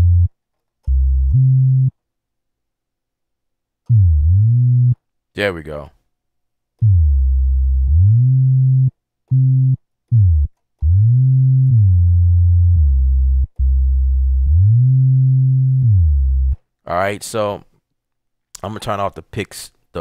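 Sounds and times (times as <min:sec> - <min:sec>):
deep synth bass gliding notes: 0:00.0 - 0:00.3, 0:00.9 - 0:01.9, 0:03.9 - 0:05.0, 0:06.8 - 0:16.6.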